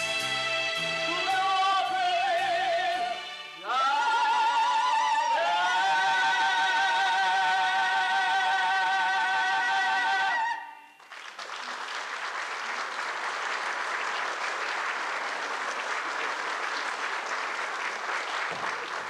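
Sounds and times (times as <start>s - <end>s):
audience applauding: 11.0s - 19.0s.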